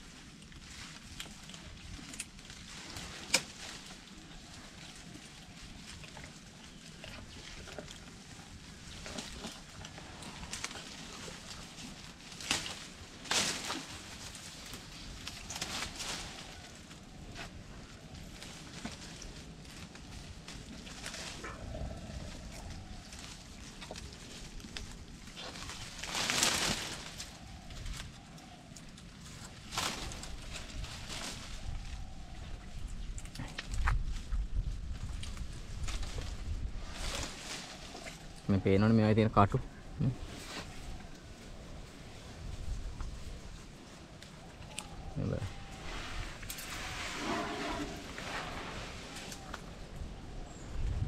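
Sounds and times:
leaves rustling: 0.0s - 51.0s
twigs snapping: 0.9s - 3.8s
twigs cracking: 18.2s - 38.4s.

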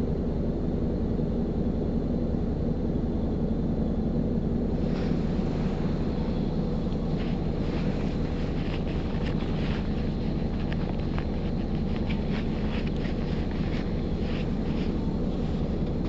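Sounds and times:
bus diesel engine running: 4.6s - 16.0s
light ticks and rattles: 4.9s - 16.0s.

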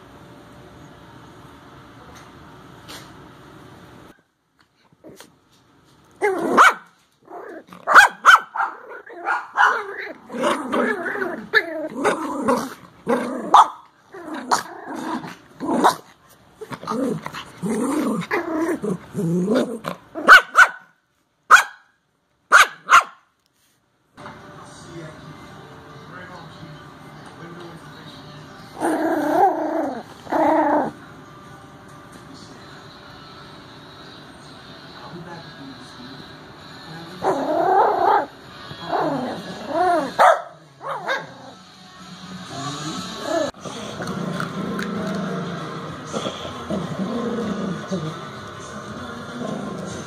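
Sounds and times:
small dogs growling: 6.2s - 6.6s, 7.2s - 8.0s, 8.6s - 20.3s, 28.7s - 31.0s, 37.1s - 40.2s, 40.8s - 41.6s, 42.4s - 48.4s, 49.0s - 50.0s
dogs barking sharply: 6.5s - 7.0s, 7.8s - 9.9s, 13.5s - 13.8s, 20.2s - 20.9s, 21.5s - 23.3s.

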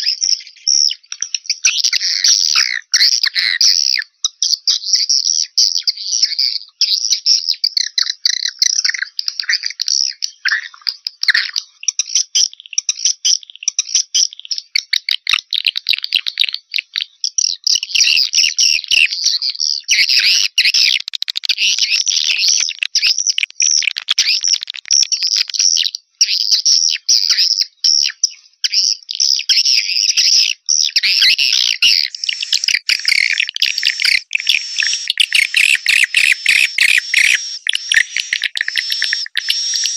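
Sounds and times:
swiftlets twittering: 31.2s - 39.9s.

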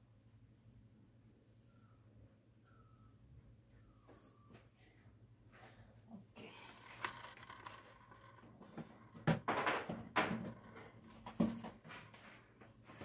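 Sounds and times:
faint low hum: 0.0s - 13.0s
knocks and clatters: 6.8s - 12.1s.

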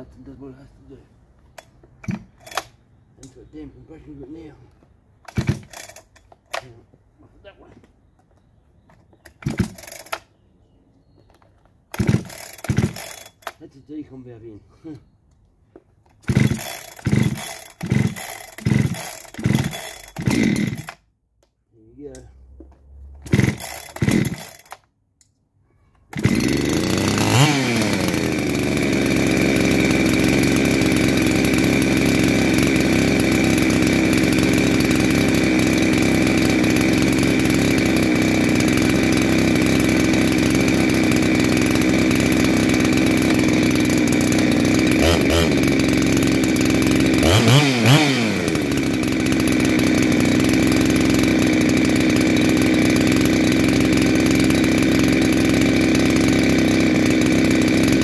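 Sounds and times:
chainsaw engine starting and idling: 1.5s - 6.8s, 8.9s - 10.4s, 11.3s - 15.0s, 15.9s - 21.1s, 22.0s - 25.0s, 26.1s - 58.0s
chainsaw revving: 2.0s - 2.8s, 5.3s - 6.8s, 9.3s - 10.3s, 11.9s - 13.7s, 16.2s - 21.1s, 23.2s - 24.8s, 26.1s - 58.0s.

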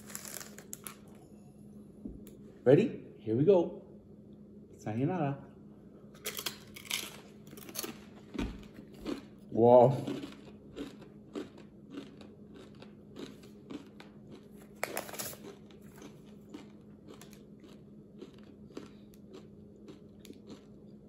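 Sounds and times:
tortilla chip crunching: 6.2s - 21.0s.

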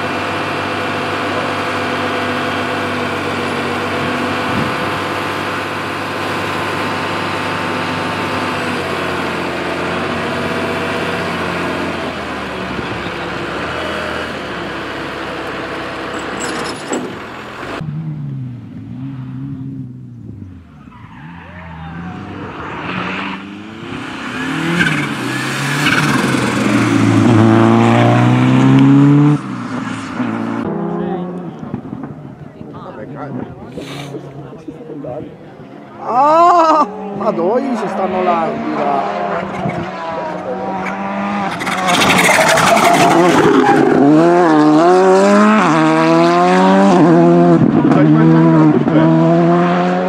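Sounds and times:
rally car engine accelerating: 0.0s - 32.5s, 34.1s - 50.0s
quieter car engine: 0.0s - 50.0s
tyres on loose gravel: 41.5s - 44.1s.

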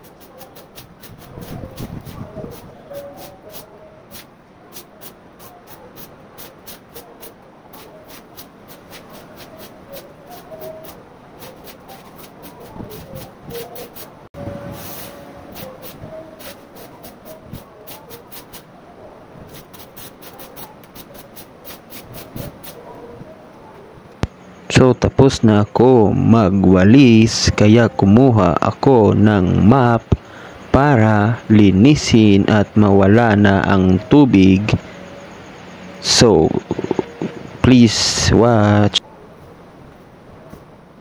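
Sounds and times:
stiff broom sweeping wet floor: 7.7s - 14.1s, 14.7s - 18.7s.

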